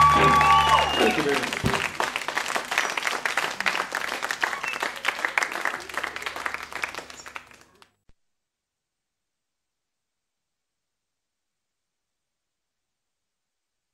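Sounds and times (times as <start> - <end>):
audience applause: 0.0 - 7.9.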